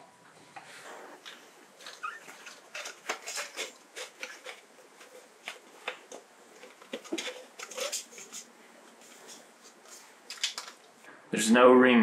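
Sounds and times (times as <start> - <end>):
short rubber squeaks: 1.8 - 3.0
rubber rubbing on plastic: 6.6 - 10.2.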